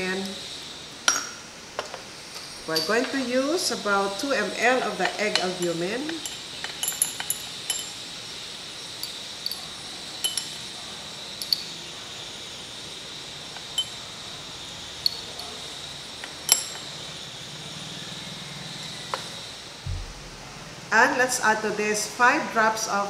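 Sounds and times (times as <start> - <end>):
steady room hiss: 0.0 - 23.0
dropper clinking on glass test tube: 6.2 - 8.0, 10.2 - 10.6.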